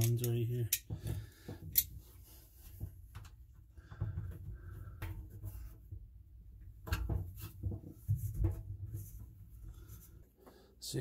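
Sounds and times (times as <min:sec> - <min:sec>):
clicks and knocks of parts: 0:00.0 - 0:02.0.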